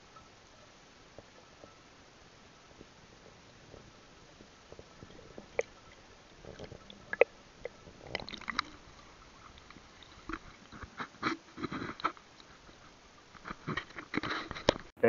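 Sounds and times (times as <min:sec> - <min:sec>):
water sloshing: 0:02.7 - 0:14.3.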